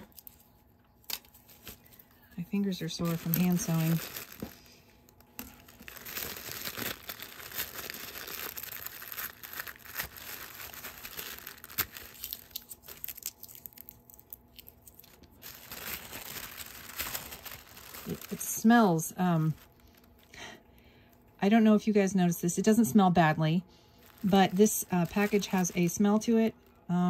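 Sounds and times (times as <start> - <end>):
tissue paper rustling: 1.3 - 4.8, 5.4 - 13.9, 14.5 - 20.1, 23.9 - 26.5.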